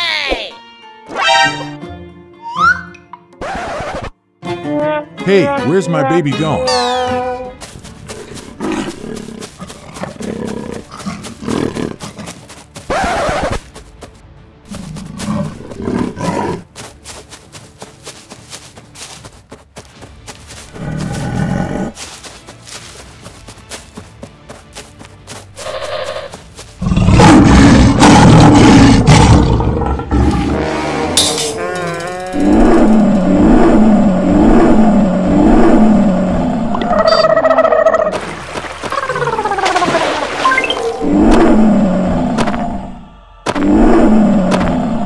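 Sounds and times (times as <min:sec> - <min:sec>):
cartoon lion roaring: 0:26.8 - 0:38.2, 0:40.8 - 0:45.0.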